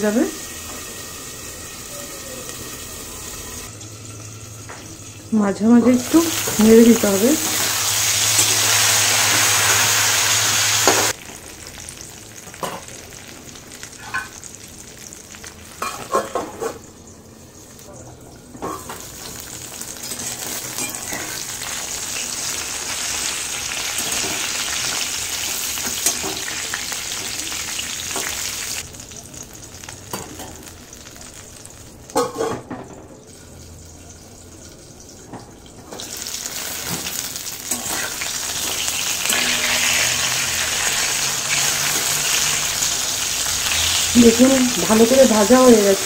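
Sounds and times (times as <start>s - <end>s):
eggplant sizzling in oil: 0.0s - 46.0s
metal spatula turning food: 36.8s - 43.9s.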